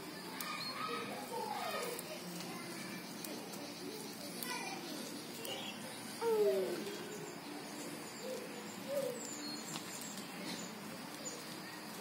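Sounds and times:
dove cooing: 6.2 - 9.4.

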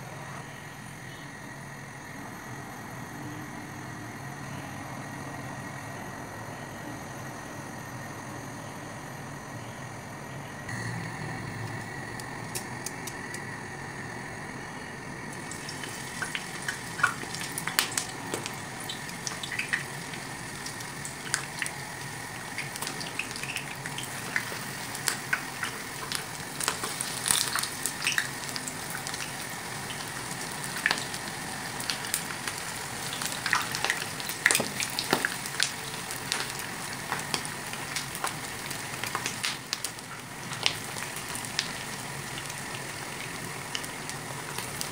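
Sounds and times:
eggplant sizzling in hot oil: 10.7 - 44.9.

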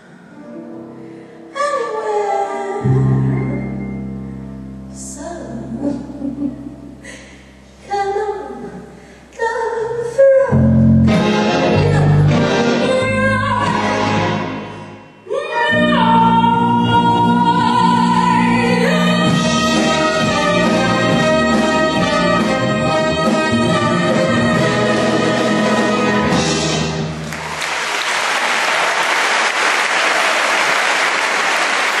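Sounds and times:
symphony orchestra and piano: 19.2 - 27.7
audience applauding: 27.2 - 32.0.

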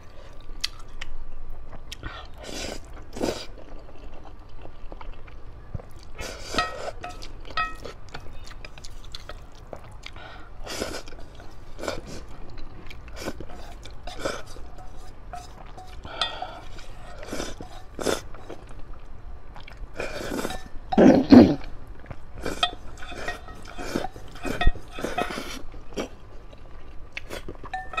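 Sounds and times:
slurping and chewing noodles: 1.9 - 28.0
chopsticks clinking on metal bowl: 6.5 - 8.3, 13.5 - 18.5, 20.4 - 21.1, 22.4 - 25.5, 27.7 - 28.0.

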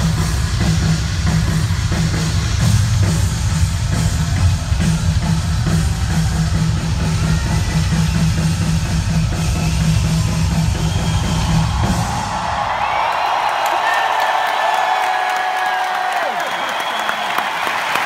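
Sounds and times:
fast bass drum beats: 0.0 - 12.8
rock drum solo: 0.0 - 13.0
crowd cheering: 1.2 - 18.0.

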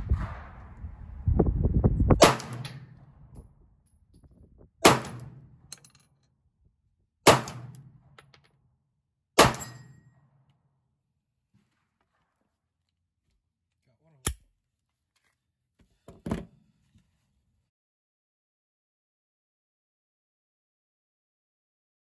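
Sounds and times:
low rumble on microphone: 0.0 - 5.5
pistol shots with echo: 2.2 - 3.1, 4.8 - 5.5, 7.3 - 8.1, 9.4 - 9.9.

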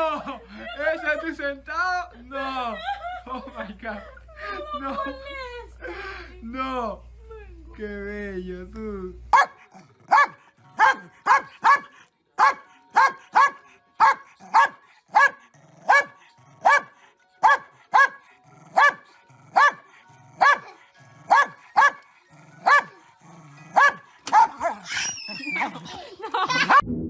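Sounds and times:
dog barking sharply: 9.4 - 16.1, 23.8 - 24.8.

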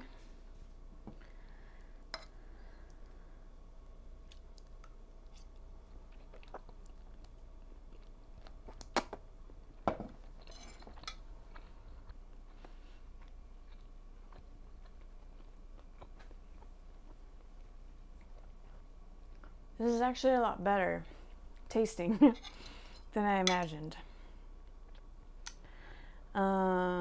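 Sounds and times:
quiet chewing: 4.2 - 9.6, 10.8 - 19.6.

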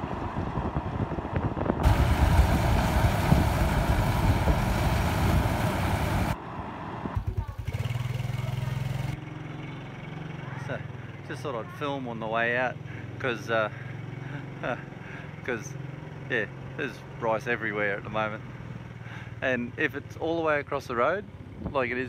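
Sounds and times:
low engine hum: 0.0 - 19.8
combine harvester rumbling: 1.6 - 9.2.

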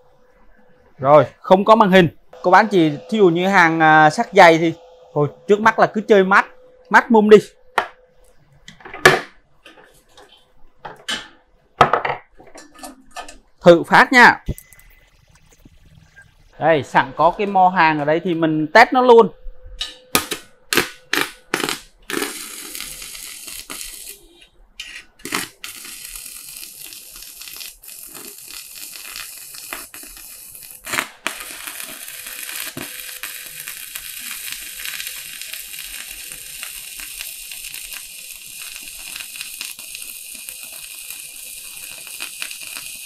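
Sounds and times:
welding arc crackling and sizzling: 1.6 - 7.5, 20.1 - 43.0.

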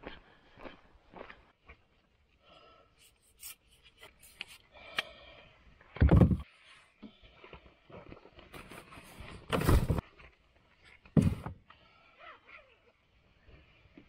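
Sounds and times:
trekking pole clicking and rubbing: 3.0 - 5.1.

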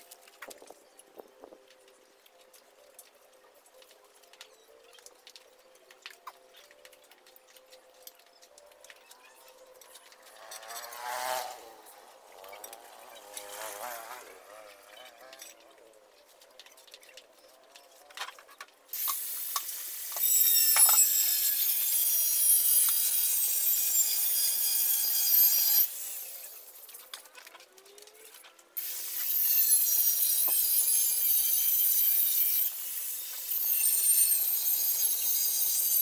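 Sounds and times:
power tool hissing on surface: 19.0 - 26.6, 28.8 - 36.0.

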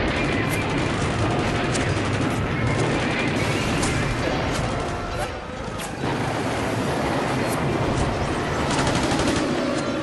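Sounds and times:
dense gunfire: 0.0 - 5.0.

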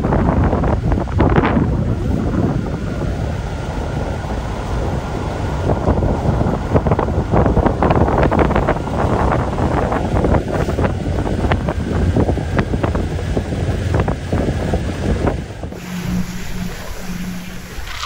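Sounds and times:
wind buffeting microphone: 0.0 - 18.0
faint steady whine: 15.7 - 18.0.

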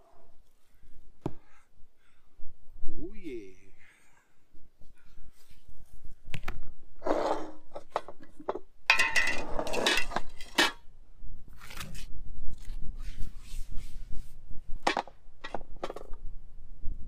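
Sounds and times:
pot set down on stone: 7.9 - 10.8
kitchenware knocks and clinks: 8.9 - 10.7.

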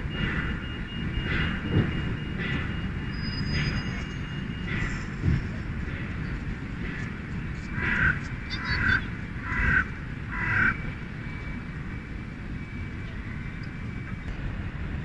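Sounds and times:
crow cawing: 7.7 - 10.8.

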